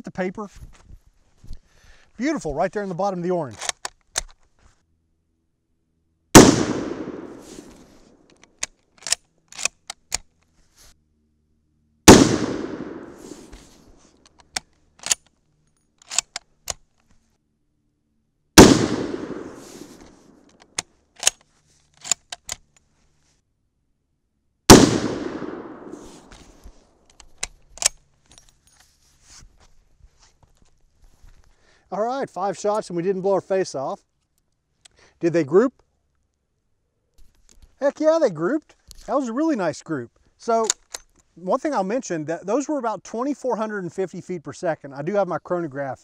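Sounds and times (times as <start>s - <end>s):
rifle bolt clicking: 3.5s - 4.4s, 6.4s - 10.4s, 14.2s - 15.3s, 16.0s - 16.9s, 18.6s - 22.8s, 24.7s - 28.0s
rifle shots with echo: 6.4s - 7.8s, 12.1s - 13.5s, 18.6s - 20.4s, 24.7s - 26.3s.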